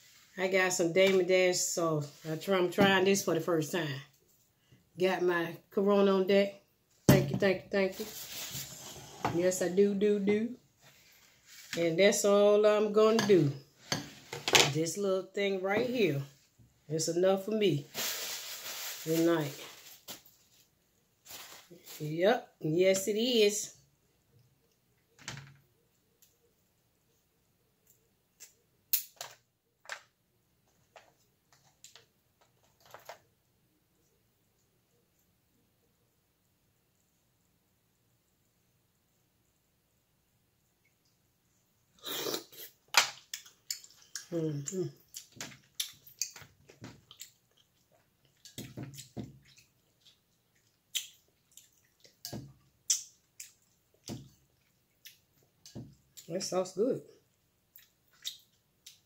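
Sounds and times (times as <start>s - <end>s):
wet squelches and drips: 43.2s - 56.3s, 57.6s - 59.0s.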